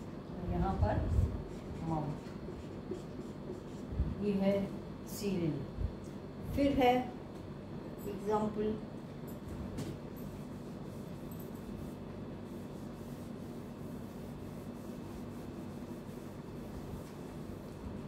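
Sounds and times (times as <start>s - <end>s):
cloth wiping a whiteboard: 0.7s - 4.1s, 10.4s - 18.0s.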